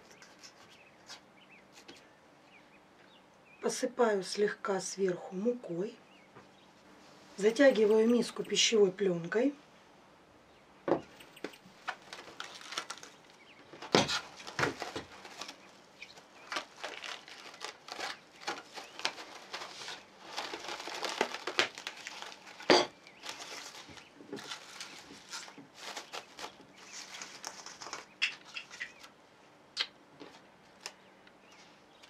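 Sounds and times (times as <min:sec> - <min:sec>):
cling film crinkling: 0:11.2 - 0:29.2.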